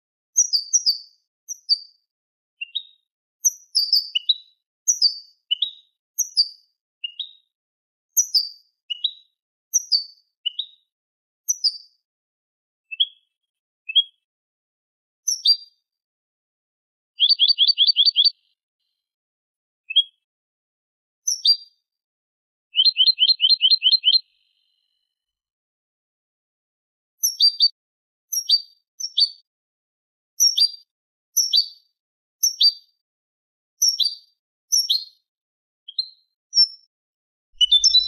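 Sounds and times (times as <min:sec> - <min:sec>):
goldfinch singing: 0:17.2 - 0:18.4, 0:22.8 - 0:24.3, 0:37.5 - 0:38.0.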